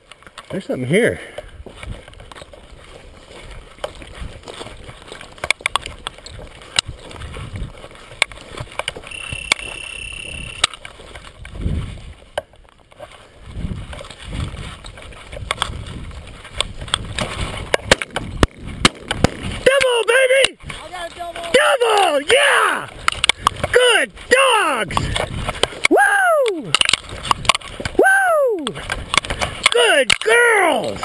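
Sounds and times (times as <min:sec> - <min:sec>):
footsteps through dry grass: 0:00.0 - 0:31.0
wind on microphone: 0:05.8 - 0:07.9, 0:08.5 - 0:12.3, 0:13.4 - 0:19.7, 0:24.9 - 0:28.1
steady high tone: 0:09.1 - 0:10.7.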